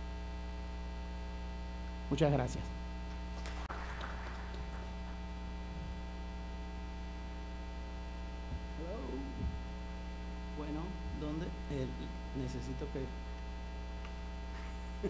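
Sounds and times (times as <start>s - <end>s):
electrical mains hum: 0.0s - 15.0s
faint voice: 8.8s - 9.5s.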